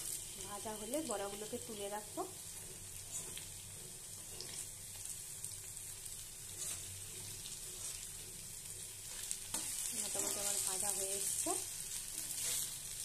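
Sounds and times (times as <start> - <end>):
fritters sizzling in hot oil: 0.0 - 13.0
spatula scraping: 2.6 - 4.7, 6.4 - 11.0, 11.9 - 13.0.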